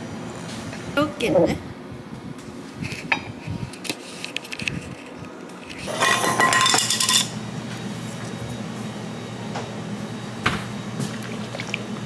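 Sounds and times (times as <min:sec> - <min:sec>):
tableware clinking and clattering: 0:05.9 - 0:07.4.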